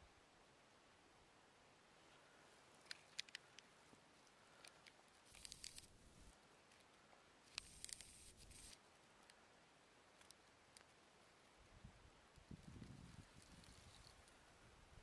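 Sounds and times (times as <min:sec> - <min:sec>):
faint clicks: 0:02.7 - 0:05.9
rustling and crackling: 0:12.3 - 0:14.5.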